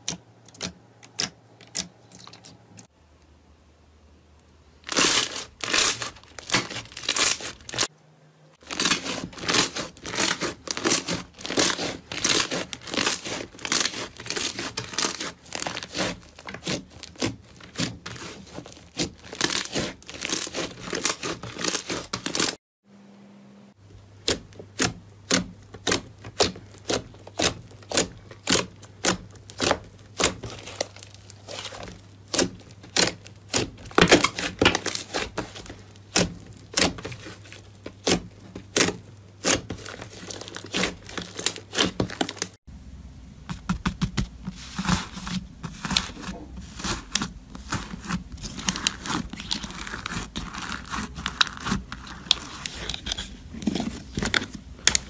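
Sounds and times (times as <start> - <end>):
slime crackling and popping: 4.8 - 7.9, 8.6 - 22.6, 24.2 - 42.6, 44.8 - 55.0.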